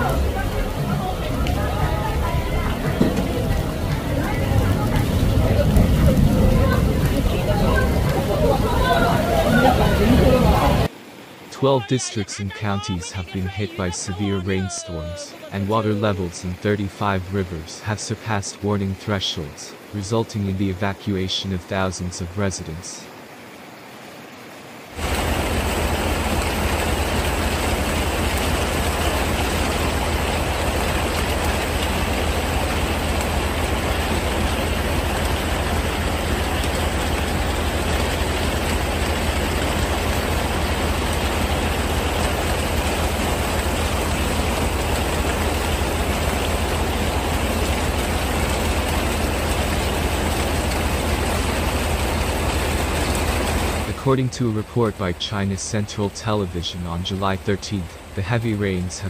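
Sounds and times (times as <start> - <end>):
deep rumble: 0.0 - 10.9
rushing floodwater: 0.0 - 59.0.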